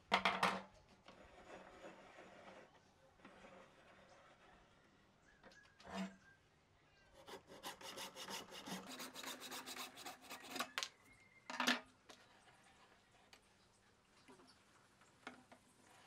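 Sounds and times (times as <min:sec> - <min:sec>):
hacksaw cutting wood: 0:07.2 - 0:10.7.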